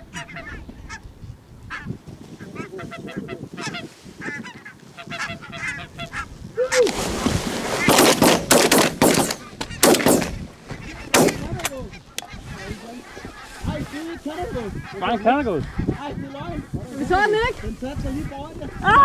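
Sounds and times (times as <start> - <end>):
geese honking: 0.0 - 1.1, 1.7 - 6.9, 10.7 - 19.0
shotgun shots: 7.8 - 10.4, 11.1 - 11.6.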